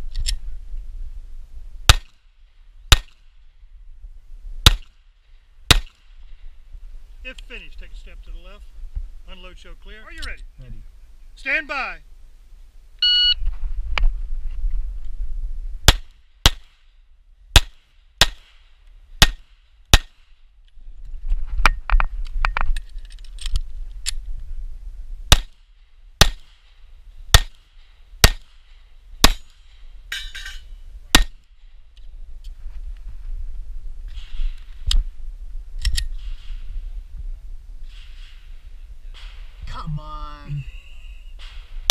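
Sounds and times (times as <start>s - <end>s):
pistol shots: 1.9s - 2.2s, 2.9s - 3.2s, 4.6s - 5.0s, 5.7s - 6.2s, 15.9s - 16.8s, 17.5s - 20.2s, 25.3s - 25.6s, 26.2s - 26.8s, 27.4s - 27.6s, 28.2s - 29.6s, 31.1s - 31.4s.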